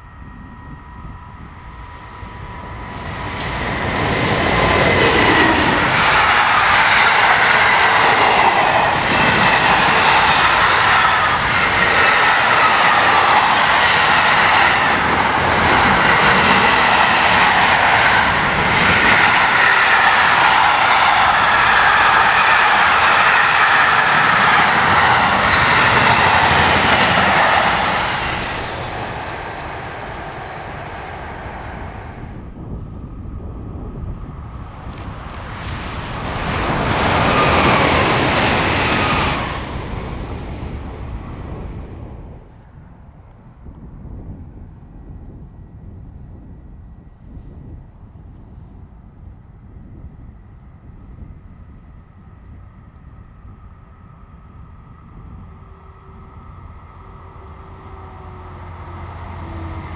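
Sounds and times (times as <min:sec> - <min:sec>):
faint steady whine: 0:00.0 - 0:08.6, 0:39.6 - 0:59.9
freight train passing: 0:00.0 - 0:59.9
train wheel clicks: 0:34.9 - 0:38.3.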